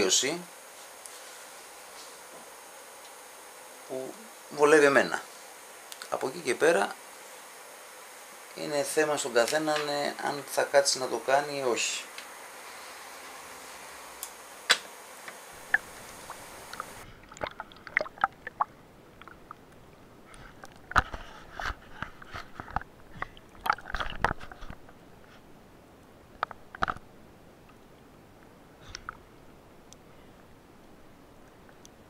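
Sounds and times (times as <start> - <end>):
steady hiss: 0.0 - 32.0
underwater clicks and crackles: 15.6 - 25.4, 26.3 - 29.3.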